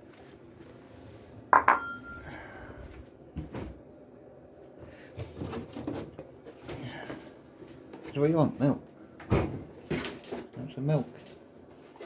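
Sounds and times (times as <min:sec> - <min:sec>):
bowl knocking and clattering: 0:01.6 - 0:02.3
dog bowl clinking: 0:01.6 - 0:02.3.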